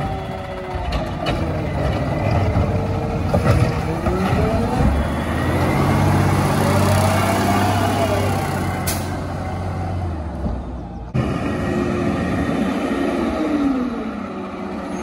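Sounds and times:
garbage truck engine revving: 0:00.0 - 0:10.4.

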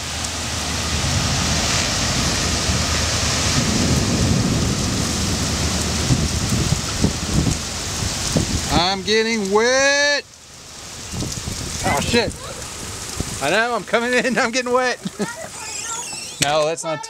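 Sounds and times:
low thunder rumble: 0:00.0 - 0:08.8
gusting wind: 0:00.0 - 0:17.0
heavy rain: 0:00.0 - 0:17.0.

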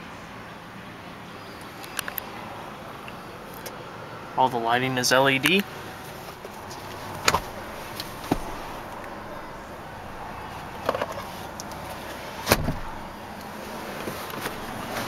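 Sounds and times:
car seat latch clicks and knocks: 0:07.2 - 0:07.5, 0:12.4 - 0:13.0.

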